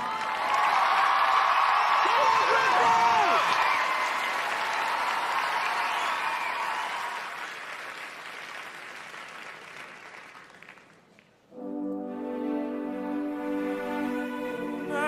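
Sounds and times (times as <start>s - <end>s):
audience cheering: 0.0s - 8.1s
audience applauding: 0.0s - 11.5s.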